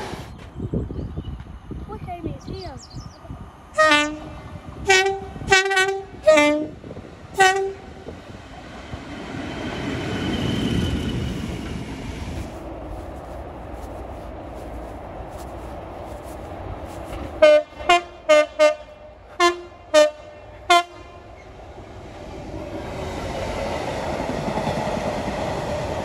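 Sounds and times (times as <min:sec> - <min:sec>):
diesel locomotive engine: 0:00.0 - 0:26.0
train passing: 0:01.4 - 0:26.0
locomotive horn blasts: 0:03.8 - 0:06.8, 0:07.4 - 0:07.9, 0:17.4 - 0:21.4.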